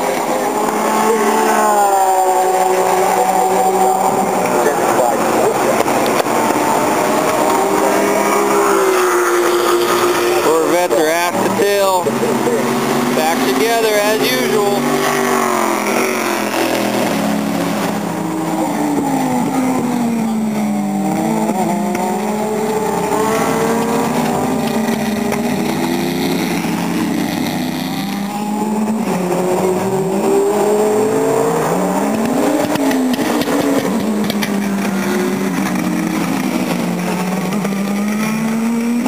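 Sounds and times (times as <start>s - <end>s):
engines changing gear: 0.0s - 39.0s
race cars passing: 0.0s - 39.0s.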